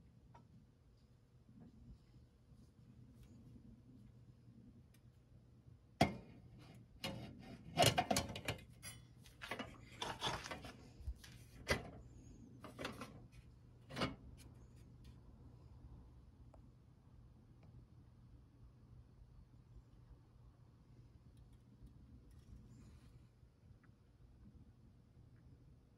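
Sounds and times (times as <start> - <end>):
metal stove parts clinking: 7.0 - 10.8, 12.6 - 13.2, 13.9 - 14.2.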